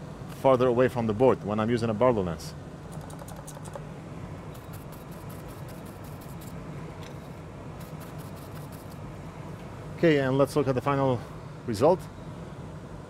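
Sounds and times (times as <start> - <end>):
low equipment hum: 0.0 - 13.0
small tools clicking and tapping: 2.9 - 3.8.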